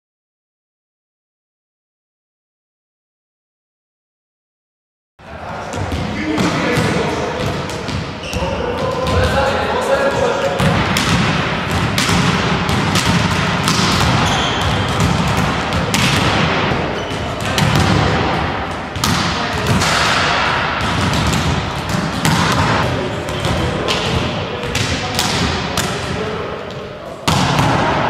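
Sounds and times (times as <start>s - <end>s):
volleyballs thudding: 5.6s - 28.0s.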